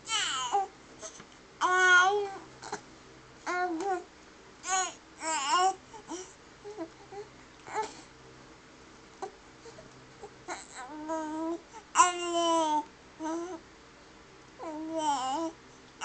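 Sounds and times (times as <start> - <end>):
baby cooing and babbling: 0.0 - 2.8, 3.4 - 8.1, 9.2 - 13.6, 14.6 - 15.6.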